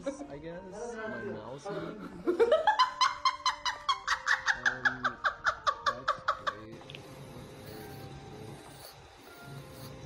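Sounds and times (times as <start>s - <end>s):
woman laughing: 1.8s - 6.6s.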